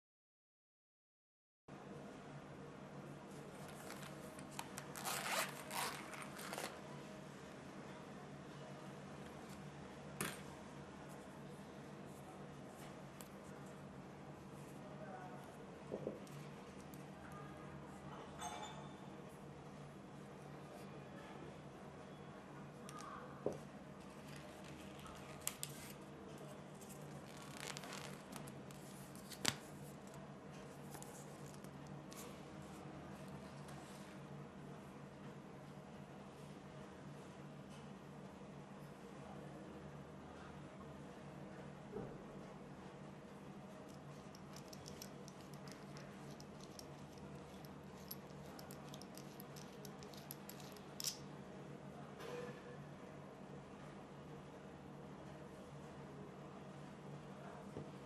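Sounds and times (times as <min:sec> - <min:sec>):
metal screw threads ticking: 0:44.4 - 0:51.2.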